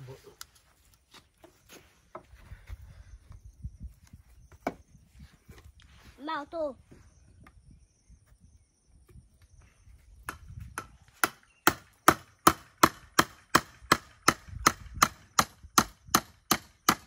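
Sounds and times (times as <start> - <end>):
hammer striking wood: 10.3 - 17.0.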